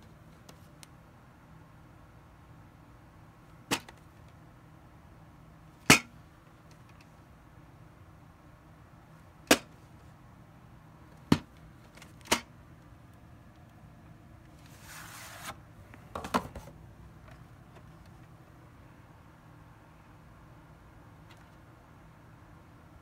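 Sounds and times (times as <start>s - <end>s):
scraping rustle: 14.6s - 15.6s.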